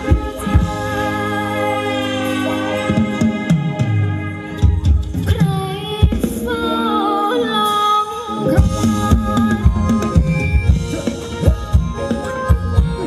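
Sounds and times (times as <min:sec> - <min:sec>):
drums and bass dance beat: 0:00.0 - 0:01.3, 0:08.6 - 0:13.0.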